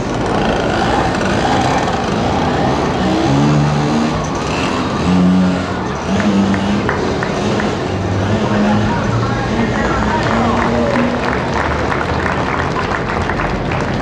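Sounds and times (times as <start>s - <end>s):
two-stroke scooter engine revving: 0.0s - 12.0s.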